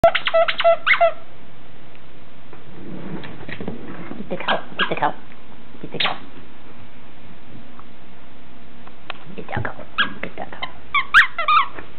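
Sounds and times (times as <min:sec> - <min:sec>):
squeak toy squeaking: 0:00.0 - 0:01.2, 0:10.0 - 0:11.8.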